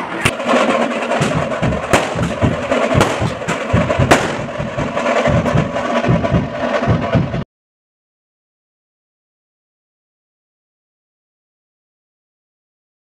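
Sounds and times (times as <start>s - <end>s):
fireworks crackling: 0.0s - 7.1s
fast steady drumming: 0.0s - 7.4s
fireworks bangs: 0.0s - 7.4s.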